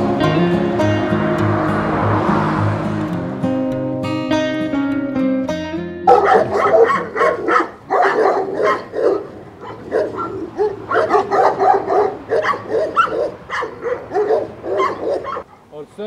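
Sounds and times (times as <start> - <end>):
acoustic guitar music: 0.0 - 15.5
dogs barking: 6.0 - 15.7.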